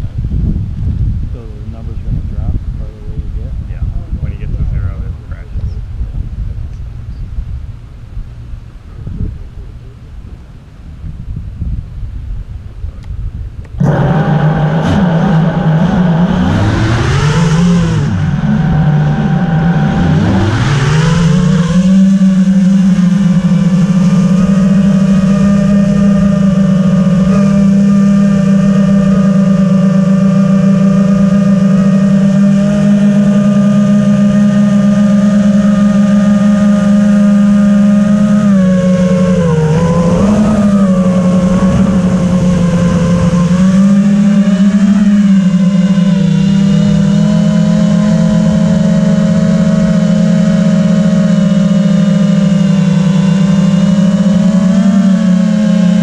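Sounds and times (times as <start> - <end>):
drone motors and propellers whining: 0.0 - 10.4, 13.0 - 56.0.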